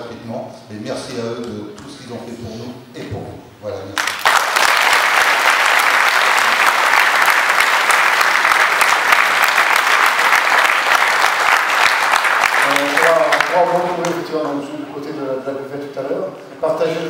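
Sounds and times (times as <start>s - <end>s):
audience applauding: 4.0s - 14.6s.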